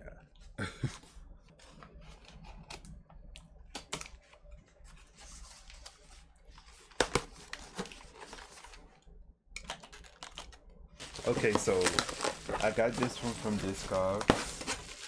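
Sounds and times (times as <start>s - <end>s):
cardboard mailer being handled: 11.0s - 15.0s.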